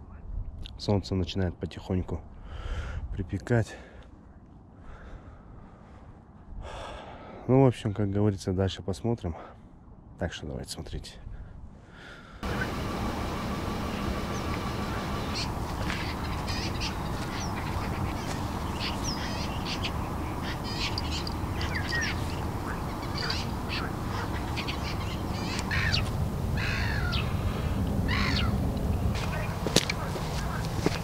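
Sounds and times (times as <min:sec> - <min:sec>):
low background noise: 0:00.0 - 0:31.0
birds chirping and whistling: 0:12.4 - 0:31.0
harsh bird calls: 0:12.4 - 0:31.0.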